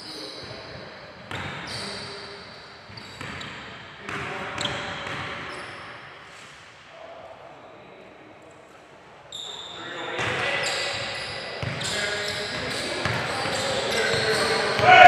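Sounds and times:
basketball bouncing on court: 0:01.3 - 0:01.7, 0:02.9 - 0:05.4, 0:11.6 - 0:15.0.

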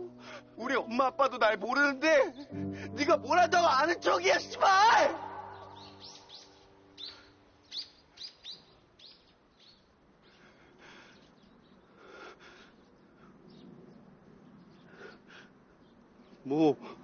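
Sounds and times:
small birds chirping: 0:05.2 - 0:17.0.

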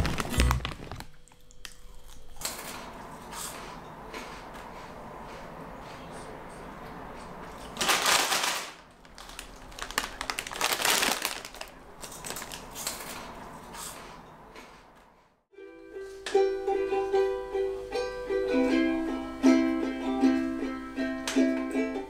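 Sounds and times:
foil crisp packet crinkling: 0:00.0 - 0:01.9, 0:07.7 - 0:13.1
plucked ukulele notes: 0:15.6 - 0:22.0.

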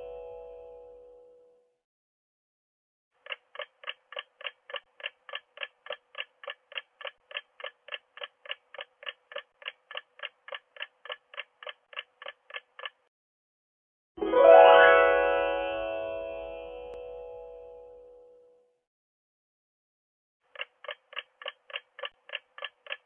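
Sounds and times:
clock ticking: 0:03.2 - 0:13.1, 0:20.5 - 0:23.0.

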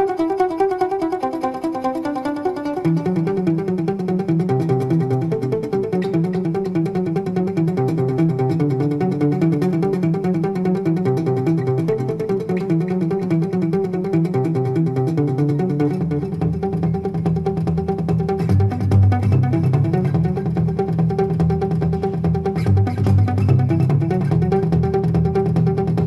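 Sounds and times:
plucked guitar notes: 0:00.0 - 0:26.0
bass part: 0:15.2 - 0:26.0.

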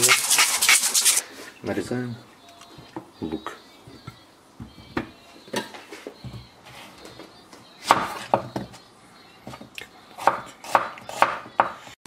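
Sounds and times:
knife chopping on wooden board: 0:10.2 - 0:11.8.

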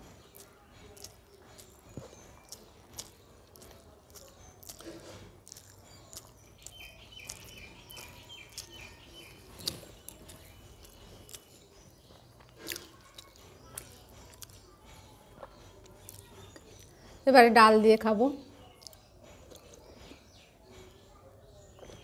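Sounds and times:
chewing: 0:00.0 - 0:17.2, 0:18.4 - 0:22.0
fingers mixing rice on plate: 0:00.0 - 0:17.2.

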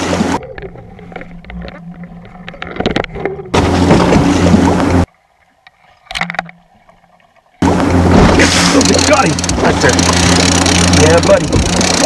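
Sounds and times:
water noise: 0:00.0 - 0:12.0
wind: 0:00.0 - 0:12.0
fishing gear clicks and knocks: 0:00.4 - 0:03.5.

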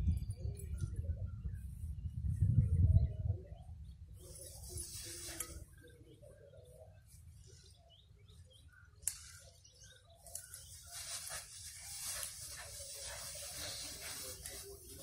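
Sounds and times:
small birds chirping: 0:00.0 - 0:15.0
rustling hiss: 0:04.3 - 0:05.8, 0:10.3 - 0:15.0.

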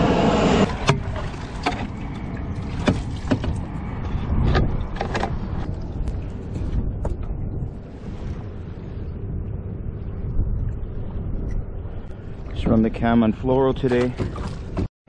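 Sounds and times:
rushing noise: 0:00.0 - 0:01.2
low rumble: 0:00.0 - 0:14.9.

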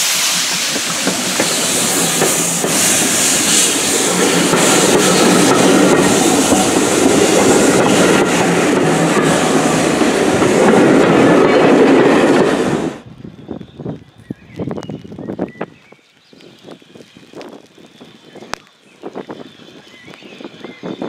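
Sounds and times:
train wheels clicking over rail joints: 0:00.0 - 0:12.9
steam hissing: 0:00.0 - 0:13.0.

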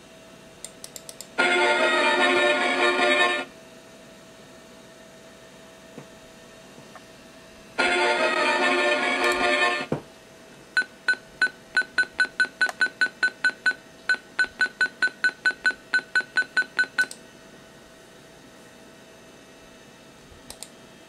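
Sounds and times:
sharp click: 0:00.6 - 0:01.3, 0:20.5 - 0:20.8.

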